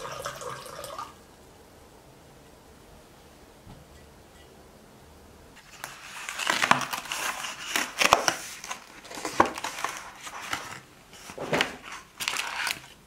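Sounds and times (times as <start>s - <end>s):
cardboard box tearing and crackling: 5.6s - 13.0s.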